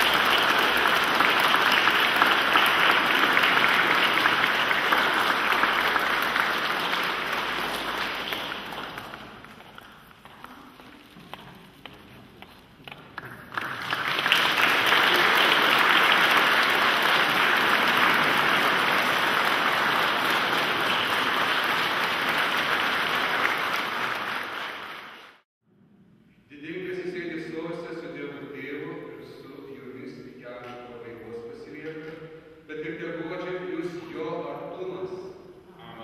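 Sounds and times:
congregation applauding: 0.0 - 10.2, 12.8 - 25.4.

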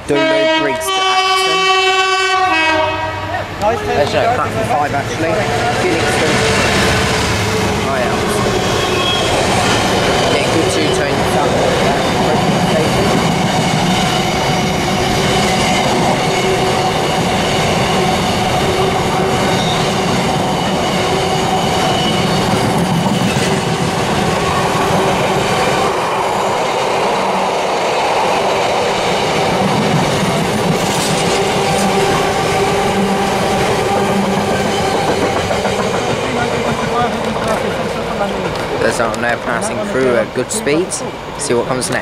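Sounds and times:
train wheels rumbling and clattering: 3.4 - 42.0
ringing tones from wheels on rails: 8.4 - 23.8.

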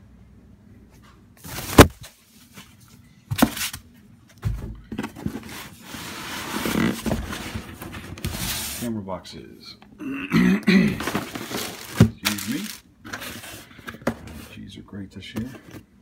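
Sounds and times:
cardboard and styrofoam rustling: 1.4 - 3.8, 4.9 - 8.9, 11.0 - 14.6.

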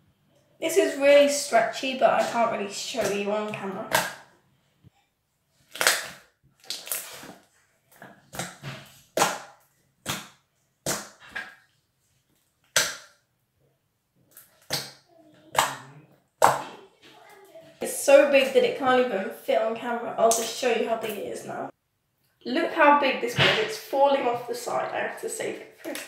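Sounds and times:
slime squelching and popping: 5.6 - 11.8, 12.4 - 13.2, 14.3 - 16.8.

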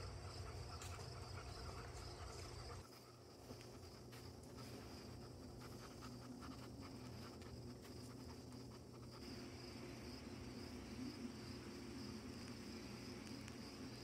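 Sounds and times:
crickets chirring: 0.0 - 14.0
soft scratchy rustling: 1.8 - 8.9.

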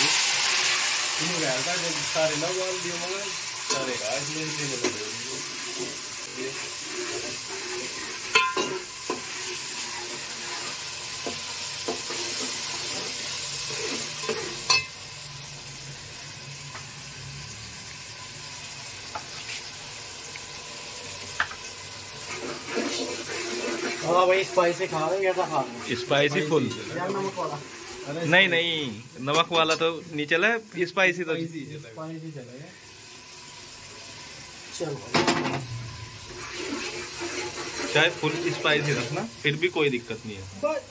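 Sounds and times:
food sizzling in a pot: 0.0 - 40.9
metal ladle scraping a pot: 4.8 - 14.9, 22.2 - 24.2, 35.5 - 39.2.

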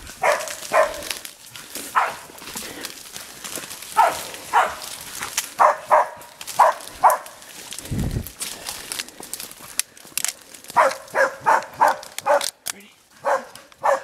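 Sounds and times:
brush crackling underfoot: 0.0 - 14.0
dog barking: 0.2 - 1.1, 1.9 - 2.3, 4.0 - 4.9, 5.6 - 7.4, 10.8 - 12.6, 13.2 - 14.0.

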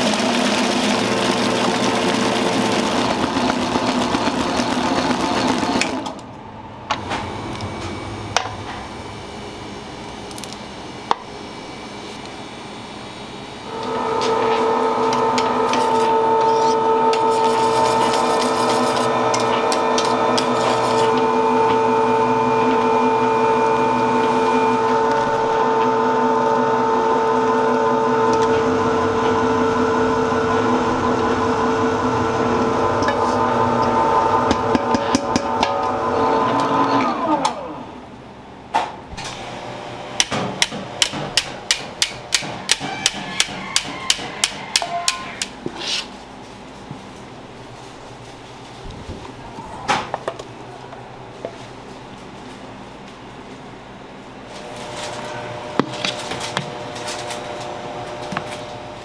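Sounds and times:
whisk beating batter in steel bowl: 0.0 - 6.0, 14.7 - 23.5
stand mixer motor whining: 0.0 - 6.3, 13.6 - 38.1, 54.5 - 59.0
motor winding down: 13.7 - 38.0.

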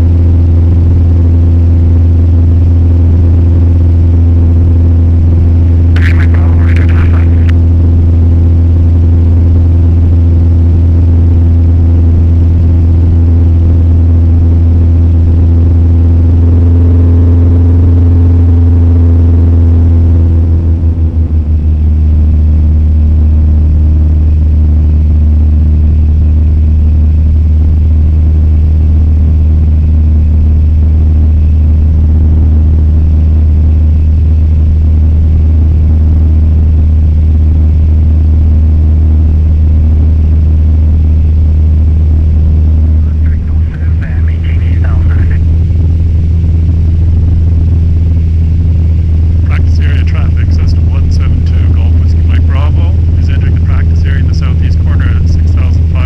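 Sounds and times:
aircraft engine and propeller droning: 40.0 - 56.0.

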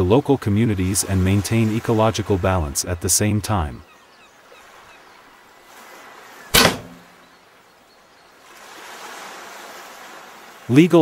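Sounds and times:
bow string snapping: 6.6 - 7.1.

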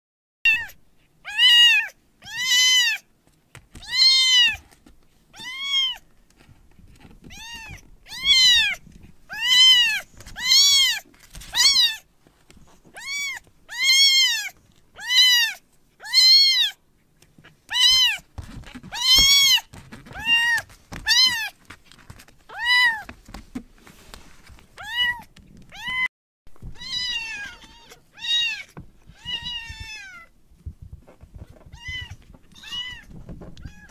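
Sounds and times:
kitten meowing: 0.5 - 3.1, 3.8 - 4.6, 7.3 - 12.0, 13.0 - 16.8, 17.7 - 18.2, 18.8 - 21.5, 22.5 - 23.1, 26.8 - 30.3, 31.7 - 33.9.

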